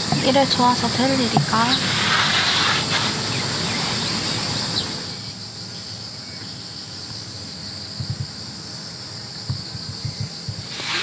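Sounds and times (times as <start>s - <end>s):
insects trilling: 0.0s - 11.0s
soft low thumps: 7.9s - 8.5s, 9.4s - 10.7s.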